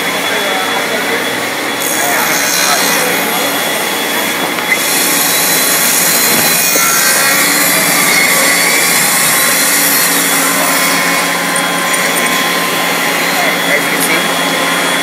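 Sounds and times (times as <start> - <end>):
drill bit boring into wood: 4.6 - 15.0.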